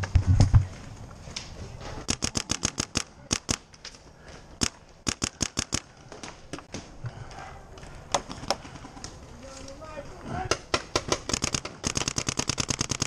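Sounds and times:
paintball marker firing: 0:10.5 - 0:13.0.

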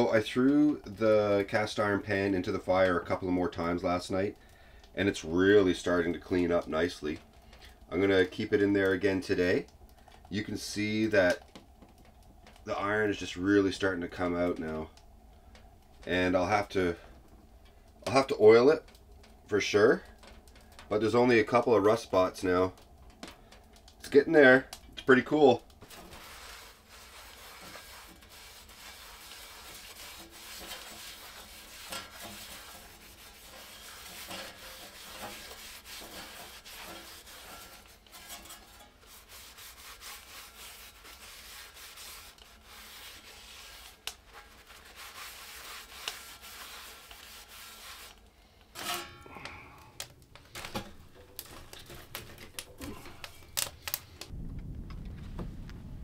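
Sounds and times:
rag scrubbing cast iron pan: 0:18.0 - 0:22.8, 0:23.4 - 0:54.3
metal knocks and clanks: 0:48.8 - 0:49.4.

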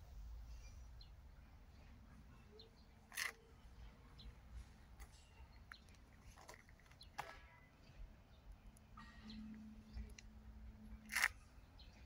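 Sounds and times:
faint bird chirps: 0:00.2 - 0:06.0.

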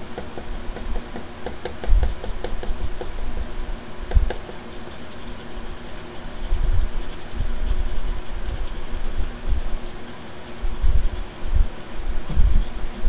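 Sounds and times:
electric fan hum: 0:00.0 - 0:13.0
scratch card being scratched: 0:01.0 - 0:13.0
low thumps and rumble: 0:10.7 - 0:12.8.

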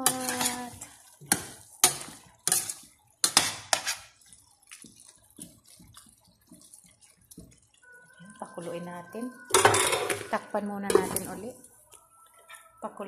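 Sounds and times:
spoon scraping a metal pot: 0:00.0 - 0:04.2.

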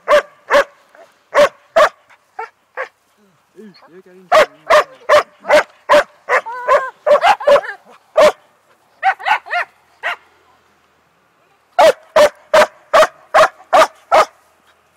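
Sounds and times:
dog barking: 0:00.0 - 0:02.9, 0:04.3 - 0:08.4, 0:09.0 - 0:10.2, 0:11.8 - 0:14.4
dog yelping yips: 0:09.0 - 0:10.2.

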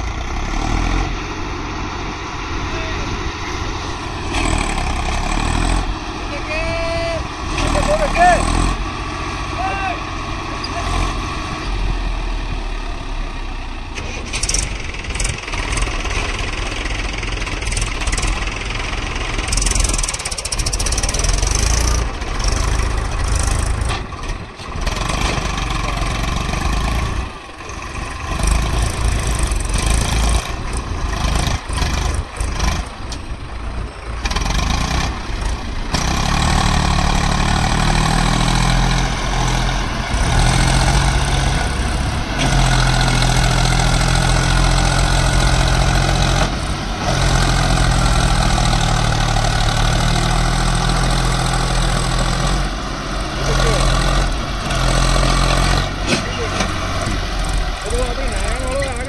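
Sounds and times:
backhoe loader diesel engine: 0:00.0 - 0:59.0
tractor engine running: 0:00.0 - 0:59.0.

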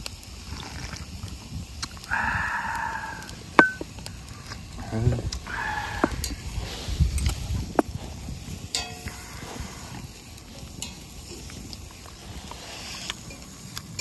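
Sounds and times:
metallic clink: 0:03.6 - 0:03.8.

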